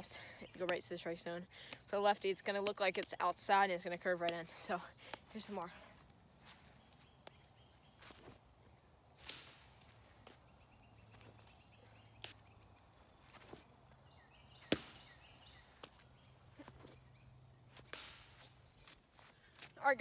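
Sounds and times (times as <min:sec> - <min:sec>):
footsteps on grass and leaves: 0:05.2 - 0:08.5, 0:09.2 - 0:20.0.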